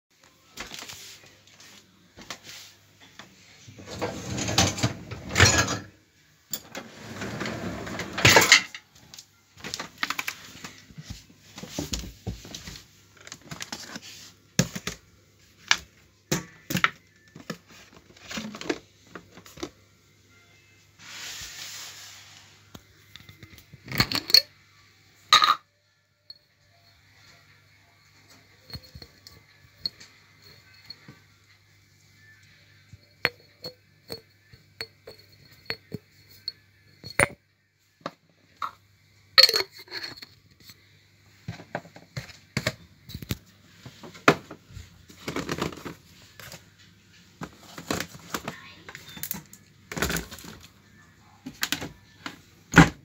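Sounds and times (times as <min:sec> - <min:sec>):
dishes and cutlery rattling: 0:03.9 - 0:05.9, 0:06.6 - 0:08.9.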